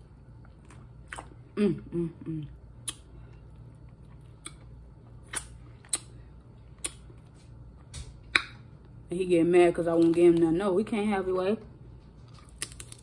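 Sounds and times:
faint low hum: 0:00.0 - 0:13.0
shellfish shells cracking: 0:12.4 - 0:13.0.

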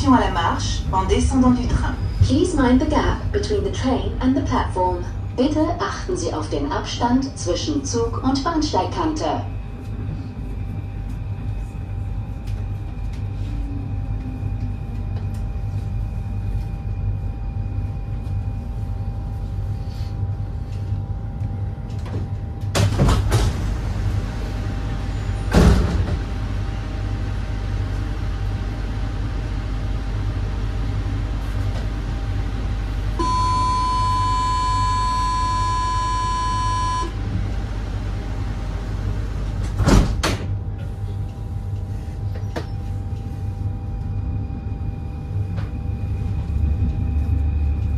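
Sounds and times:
train humming at platform: 0:00.0 - 0:47.9
train door thuds: 0:22.0 - 0:23.7, 0:25.5 - 0:26.3, 0:39.6 - 0:40.6
electronic door warning tone: 0:33.2 - 0:37.2.

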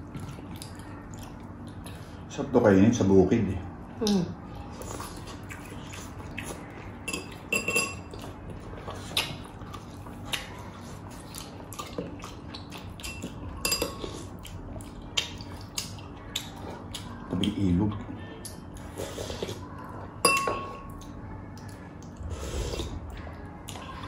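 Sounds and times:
faint low hum: 0:00.0 - 0:24.0
tableware clinking: 0:07.1 - 0:08.1, 0:13.1 - 0:14.1, 0:20.2 - 0:20.8.

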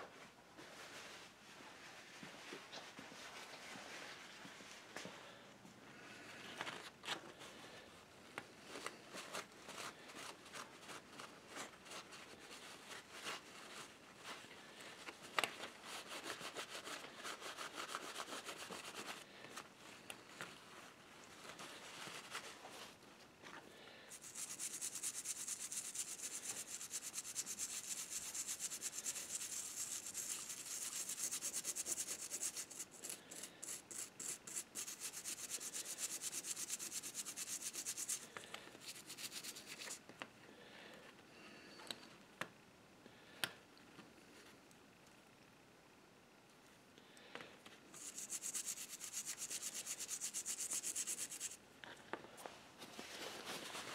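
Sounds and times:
small brush scrubbing: 0:15.8 - 0:19.2, 0:24.1 - 0:40.0, 0:47.9 - 0:51.6
paper towel rubbing metal: 0:24.1 - 0:40.0, 0:48.0 - 0:51.6.

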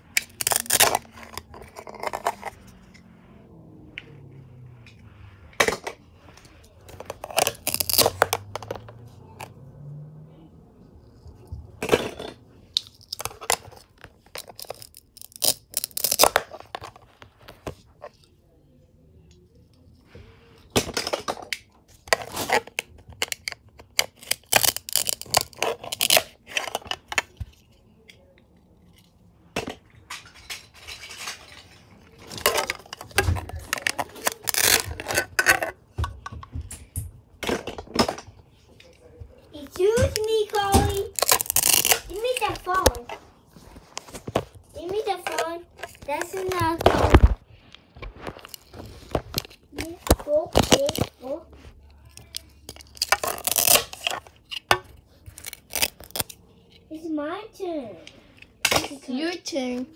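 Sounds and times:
velcro ripping apart: 0:00.2 - 0:01.1, 0:07.2 - 0:08.5, 0:33.7 - 0:35.6, 0:41.1 - 0:42.4, 0:52.8 - 0:54.1.

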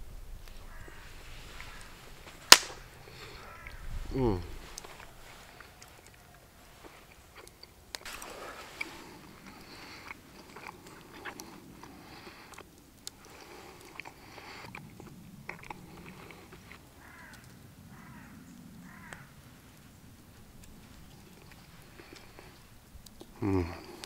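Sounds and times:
sharp clicks: 0:02.5 - 0:02.8
person chewing steak: 0:04.6 - 0:18.2, 0:20.3 - 0:24.0.

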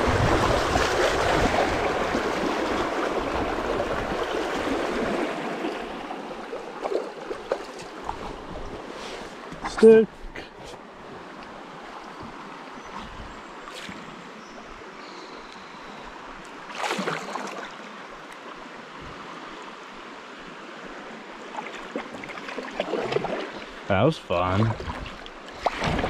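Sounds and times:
loud splash: 0:00.0 - 0:05.6, 0:16.7 - 0:17.6, 0:24.7 - 0:26.0
flowing river water: 0:00.0 - 0:26.0.

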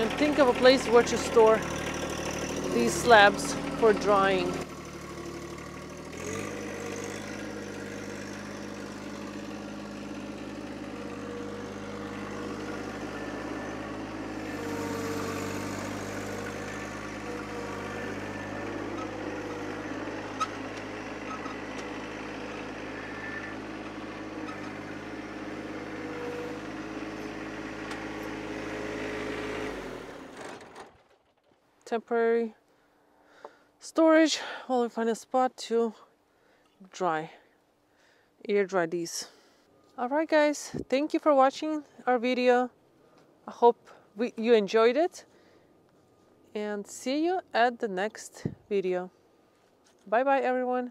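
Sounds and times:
tractor diesel engine running: 0:00.0 - 0:31.8.

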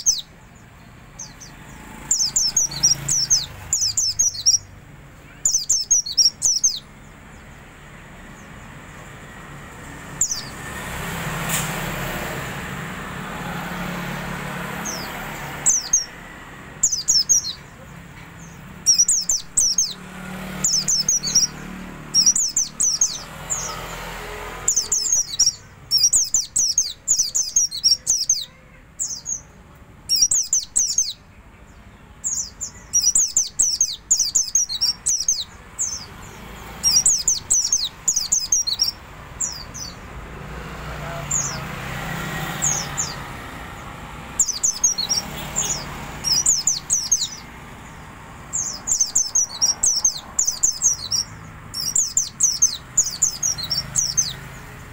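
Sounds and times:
road traffic noise: 0:00.0 - 0:54.9
songbird chirping: 0:00.0 - 0:54.9.

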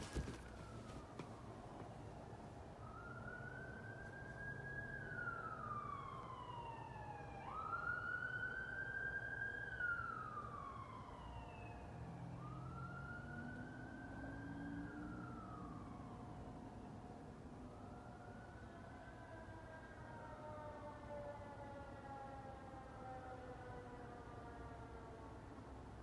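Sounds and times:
distant siren wailing: 0:00.0 - 0:25.8.

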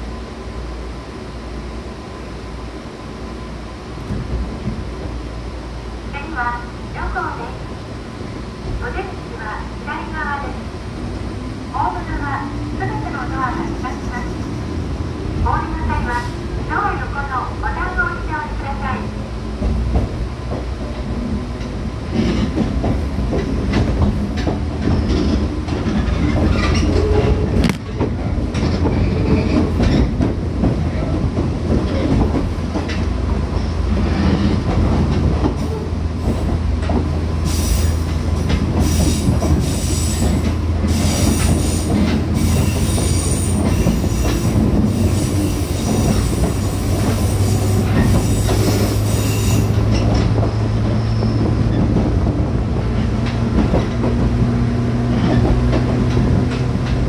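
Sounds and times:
train wheels on rail: 0:00.0 - 0:57.0
high-pitched wheel squeal: 0:47.3 - 0:49.8.

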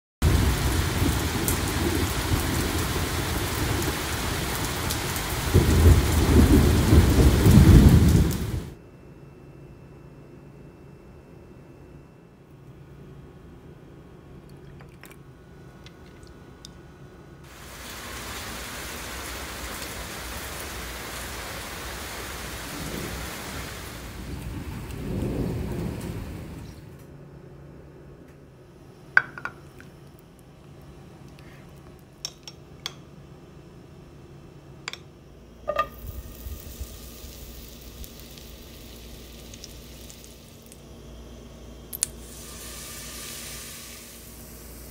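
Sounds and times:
steady rain: 0:00.2 - 0:08.8, 0:17.4 - 0:27.1, 0:35.7 - 0:44.9
thunder rumbling: 0:00.2 - 0:08.8, 0:22.4 - 0:27.0, 0:35.9 - 0:40.5.

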